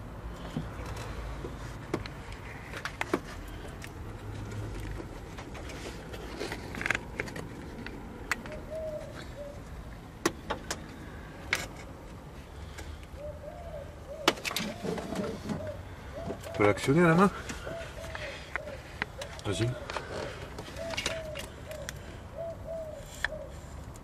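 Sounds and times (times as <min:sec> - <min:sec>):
bird cooing: 0:08.3 - 0:09.9, 0:12.6 - 0:23.8.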